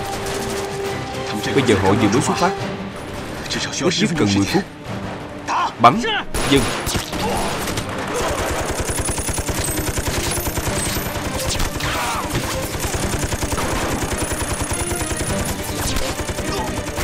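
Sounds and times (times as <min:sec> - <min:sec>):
rapid gunfire: 0:00.0 - 0:01.1, 0:06.3 - 0:17.0.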